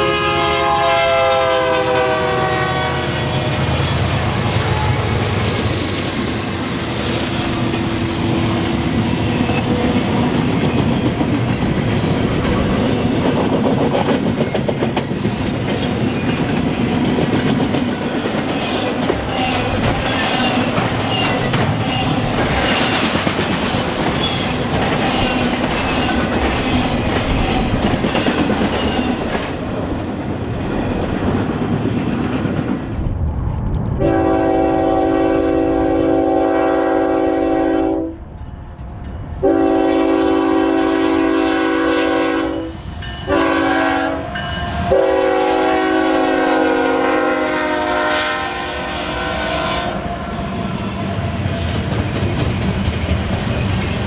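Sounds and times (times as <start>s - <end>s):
locomotive air horn blasts: 0.0s - 3.6s, 34.0s - 38.2s, 39.4s - 50.0s
freight train wheels clicking: 3.1s - 33.8s, 49.9s - 54.0s.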